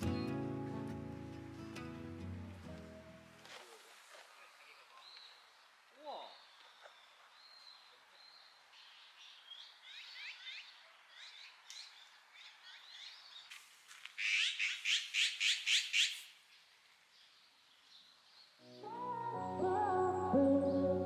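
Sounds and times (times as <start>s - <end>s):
songbirds chirping: 4.3s - 21.0s.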